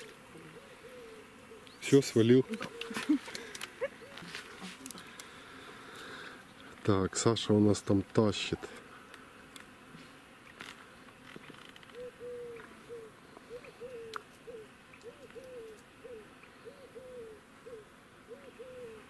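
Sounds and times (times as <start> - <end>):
bird cooing faintly: 0.0 - 5.1, 11.8 - 19.0.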